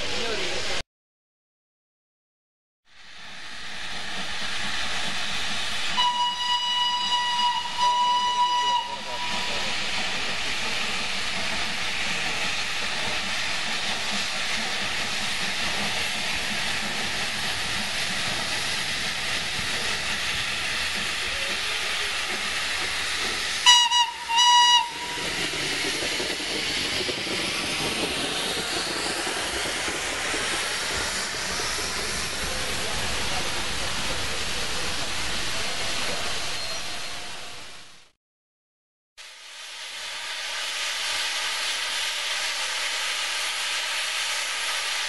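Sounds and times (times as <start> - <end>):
steam locomotive hissing: 3.0 - 38.0, 39.2 - 45.0
steam whistle blasts: 5.9 - 9.7, 23.6 - 25.3.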